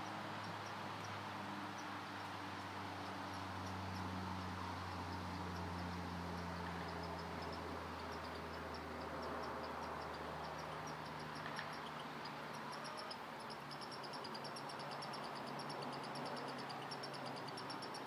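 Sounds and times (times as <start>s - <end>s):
rapid high-pitched chirping: 6.4s - 18.0s.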